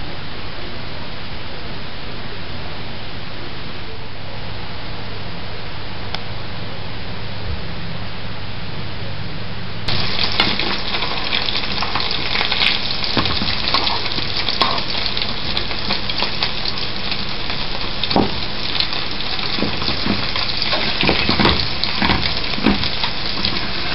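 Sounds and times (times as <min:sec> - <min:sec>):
food sizzling in hot oil: 0:09.9 - 0:23.9.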